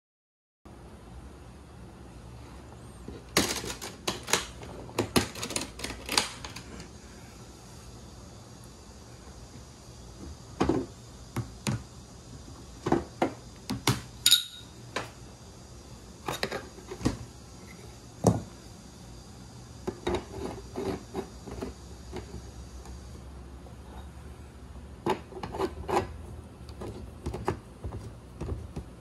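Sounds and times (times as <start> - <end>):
metal pipes knocking and clinking: 14.2 - 14.7.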